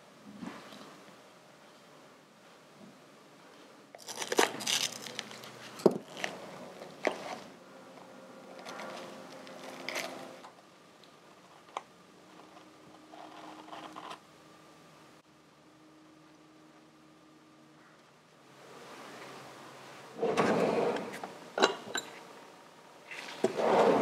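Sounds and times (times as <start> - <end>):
masking tape crinkling and tearing: 4.0 - 7.4.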